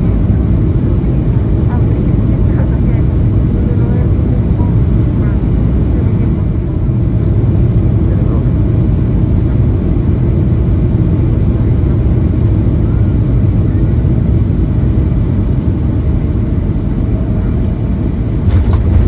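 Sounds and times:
jet engines rumbling: 0.0 - 19.0
rush of air over flaps: 15.5 - 19.0.

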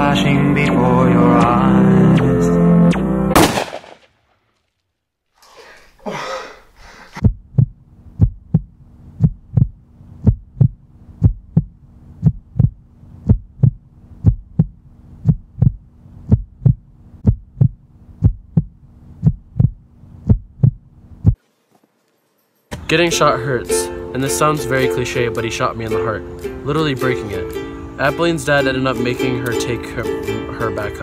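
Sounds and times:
heartbeat double thump: 7.2 - 21.4
steady low hum: 7.2 - 21.4.

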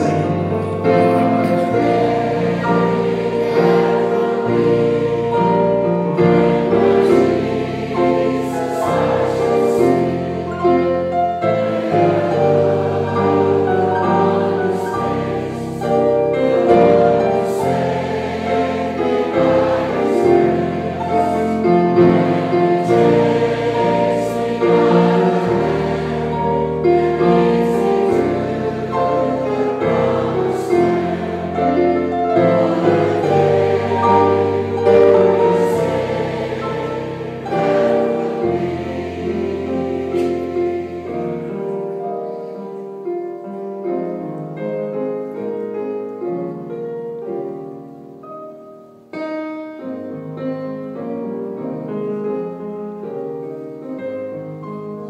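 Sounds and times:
male vocal trio singing a hymn: 0.0 - 5.6, 16.6 - 40.4
keyboard accompaniment: 0.0 - 55.0.

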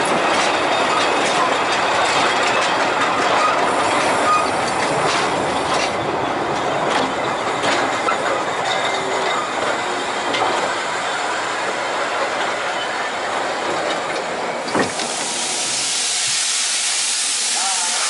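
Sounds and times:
steam train rumble and rattle: 0.0 - 18.0
steam hissing: 14.8 - 18.0.

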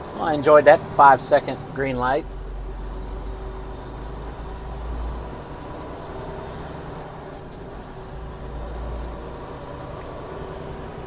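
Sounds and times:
truck engine and road drone: 0.0 - 11.0.

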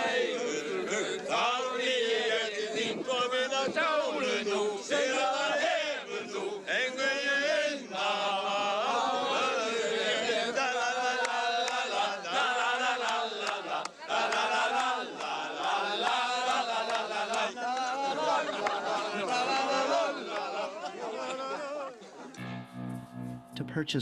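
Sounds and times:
men singing together: 0.0 - 22.2
hand claps: 11.2 - 11.9, 13.0 - 18.0.

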